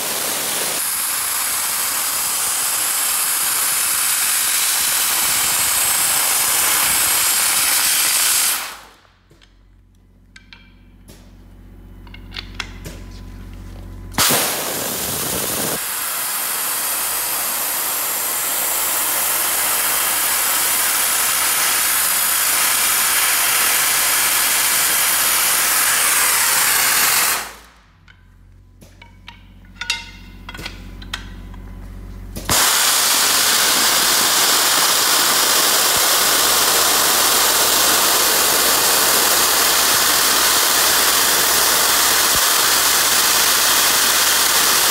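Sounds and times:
dry-ice blaster hissing: 0.0s - 9.2s, 14.1s - 27.9s, 32.4s - 44.9s
low compressor hum: 8.8s - 16.2s, 27.5s - 32.5s.

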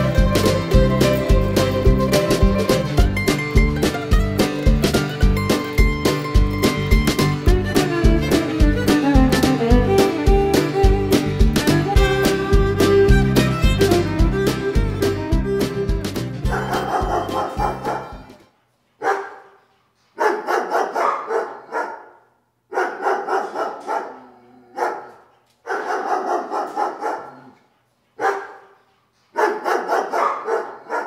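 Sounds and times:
fiddle tune: 0.0s - 18.4s
dog barking: 16.5s - 18.2s, 19.0s - 27.6s, 28.2s - 31.0s.

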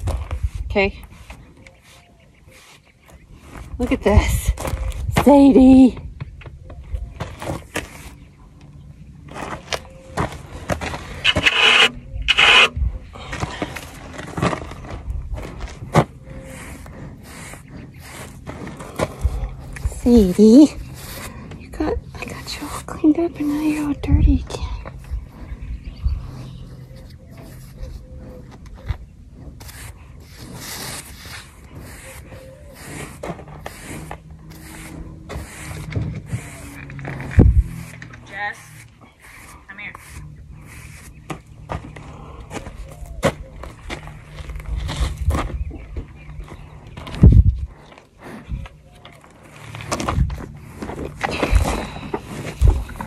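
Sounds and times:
rubber comb scraping horse coat: 9.4s - 12.8s, 13.7s - 24.0s, 26.2s - 41.6s, 49.2s - 53.0s
brush scrubbing horse coat: 16.3s - 18.9s, 29.6s - 41.2s.

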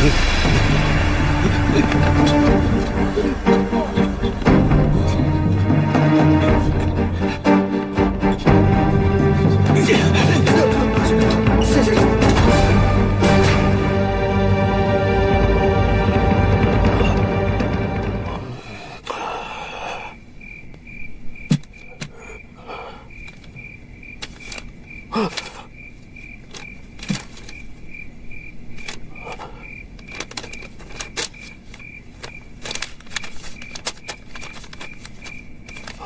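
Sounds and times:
cricket chirping: 16.3s - 36.0s
small clicks and rustles: 26.4s - 27.7s, 29.9s - 36.0s.

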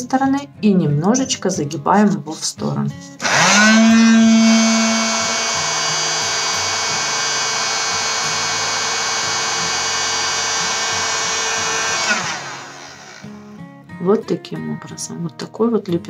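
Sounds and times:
heat gun running: 3.2s - 13.4s.

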